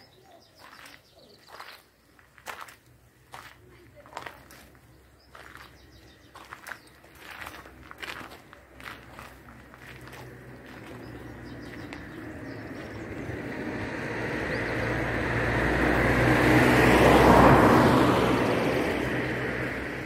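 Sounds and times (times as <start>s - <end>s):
car passing by: 9.0s - 20.0s.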